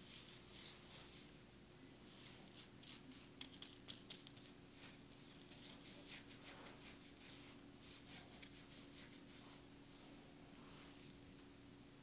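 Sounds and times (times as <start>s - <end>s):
fingers rustling through hair: 0.0s - 1.2s, 2.0s - 9.6s
faint steady hum: 0.0s - 12.0s.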